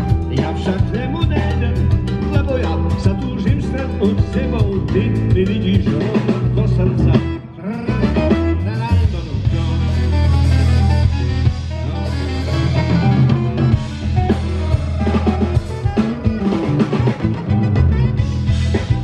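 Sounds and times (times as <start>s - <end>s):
drum kit: 0.0s - 19.0s
electric bass guitar: 0.0s - 19.0s
saxophone melody: 6.9s - 19.0s.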